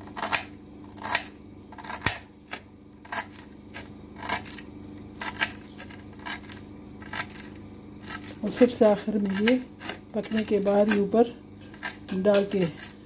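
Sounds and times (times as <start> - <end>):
knife chopping on a plate: 9.3 - 13.0.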